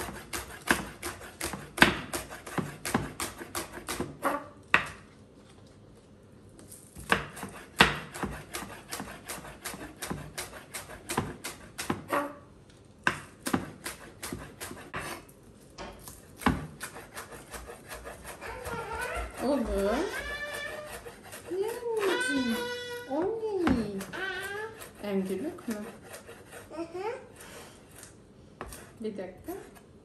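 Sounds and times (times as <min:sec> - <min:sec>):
knife chopping on wooden board: 0:00.0 - 0:05.0, 0:07.0 - 0:12.4, 0:13.0 - 0:15.2, 0:16.0 - 0:24.2, 0:28.0 - 0:29.8.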